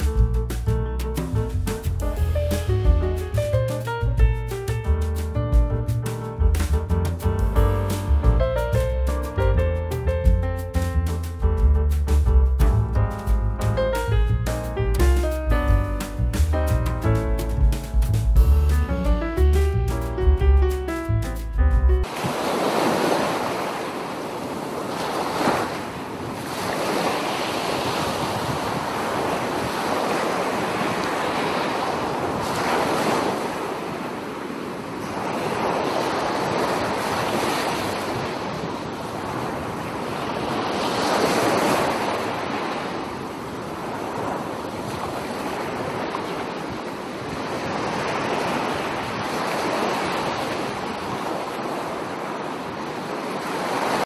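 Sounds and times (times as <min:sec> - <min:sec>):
waves breaking on beach: 0:22.0 - 0:54.0.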